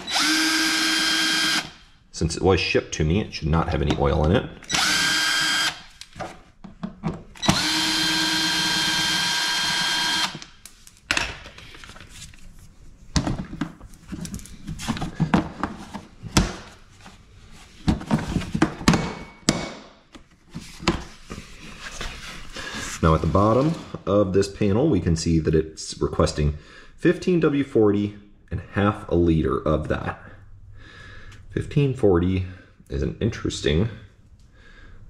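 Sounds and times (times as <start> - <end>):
cordless drill whining: 0.0 - 1.8, 4.6 - 5.9, 7.4 - 10.5.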